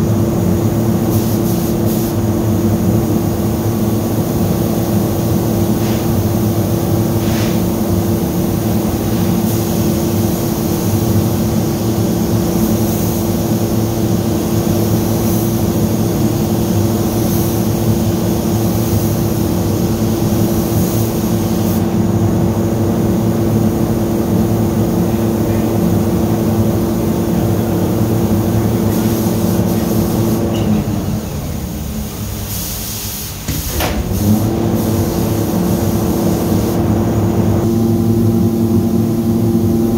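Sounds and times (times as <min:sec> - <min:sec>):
machine drone with low hum: 0:00.0 - 0:32.5, 0:33.4 - 0:39.9
paint spray gun hissing: 0:01.0 - 0:02.2, 0:04.3 - 0:21.9, 0:28.7 - 0:30.5, 0:32.4 - 0:36.8.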